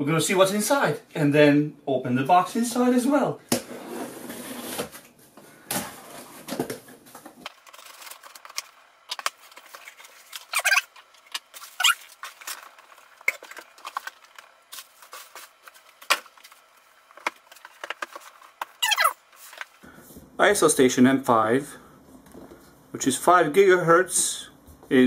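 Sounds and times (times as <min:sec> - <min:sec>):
packaging scrapes and clicks: 0:07.5 - 0:16.6
squeaky cardboard rubs: 0:09.9 - 0:11.0, 0:11.7 - 0:12.2, 0:18.8 - 0:19.2.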